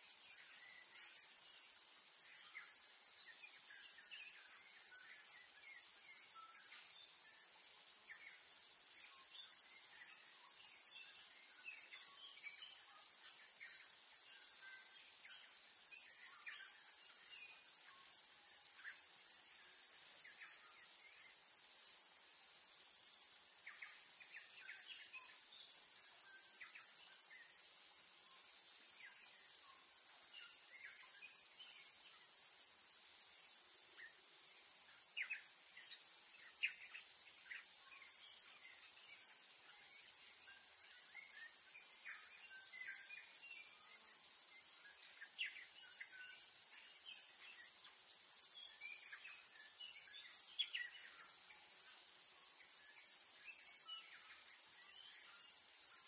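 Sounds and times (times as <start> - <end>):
high-pitched insect chorus: 0.0 - 56.0.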